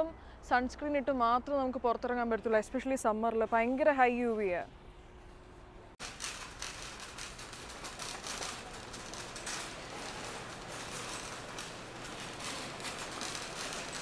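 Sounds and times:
shopping cart rattling: 0:06.0 - 0:14.0.

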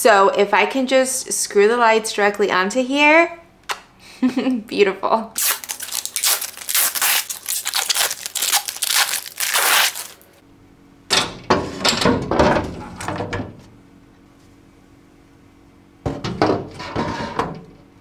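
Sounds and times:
plastic shelves knocking and scraping: 0:16.1 - 0:17.6.

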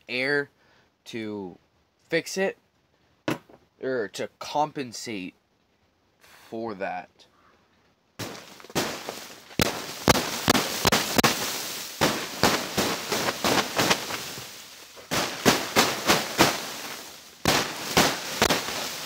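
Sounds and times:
hand slapping plastic tarp: 0:08.2 - 0:19.0
snow hissing off tarp: 0:08.2 - 0:19.0.

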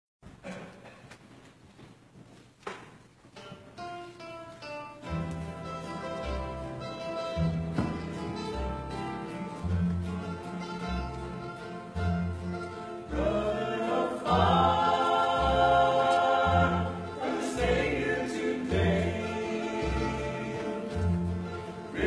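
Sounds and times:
strummed acoustic guitar: 0:03.4 - 0:22.0
plucked upright bass: 0:03.8 - 0:22.0
group singing a gospel song: 0:13.0 - 0:22.0.

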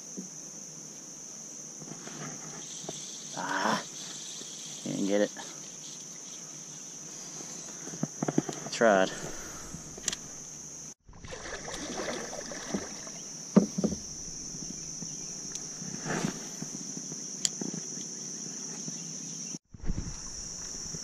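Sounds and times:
high insect buzz: 0:00.0 - 0:21.0
paddle knocking and rustling: 0:11.1 - 0:16.8.

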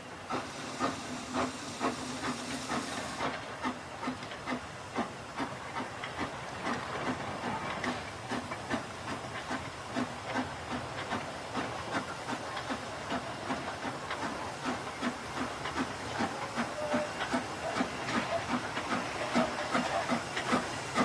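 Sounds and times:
steam hissing: 0:00.0 - 0:21.0
steam locomotive exhaust beats: 0:00.0 - 0:21.0.

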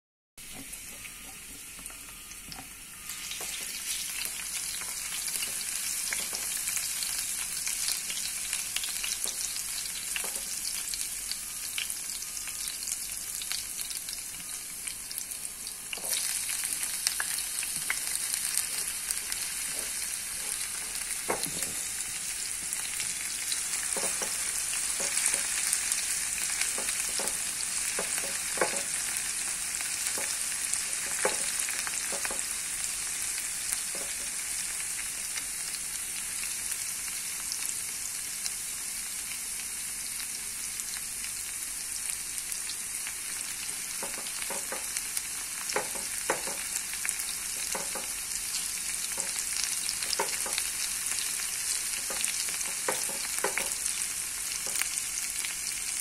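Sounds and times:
garlic sizzling in hot oil: 0:00.4 - 0:56.0
spatula scraping and tapping pan: 0:04.8 - 0:06.6, 0:10.2 - 0:10.6, 0:18.7 - 0:21.8, 0:23.8 - 0:25.7, 0:26.6 - 0:29.0, 0:30.1 - 0:32.5, 0:33.9 - 0:34.4, 0:44.0 - 0:44.9, 0:45.7 - 0:46.7, 0:47.6 - 0:48.2, 0:49.1 - 0:49.4, 0:50.0 - 0:50.7, 0:51.9 - 0:53.9.

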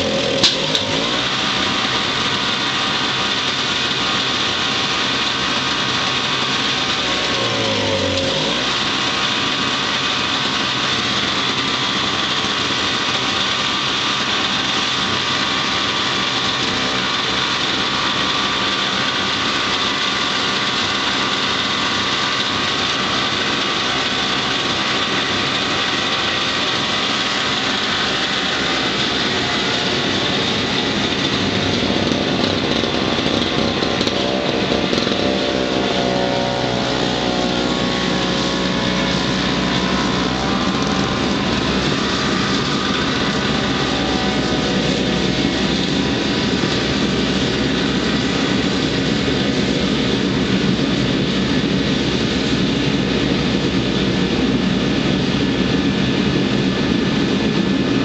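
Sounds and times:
snowblower engine running: 0:00.0 - 0:58.0.

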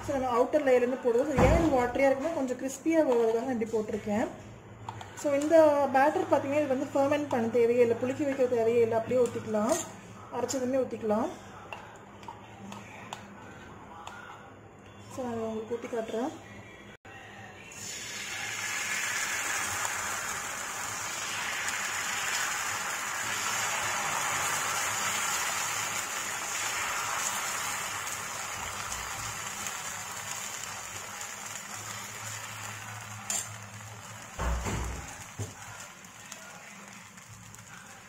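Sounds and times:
batter sizzling on griddle: 0:17.8 - 0:38.0.

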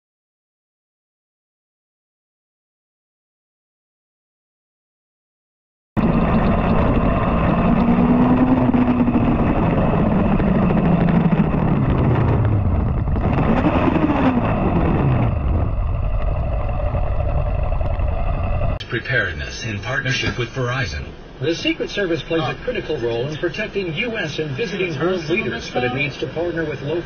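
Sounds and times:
vehicle engine running loudly: 0:06.0 - 0:18.8.

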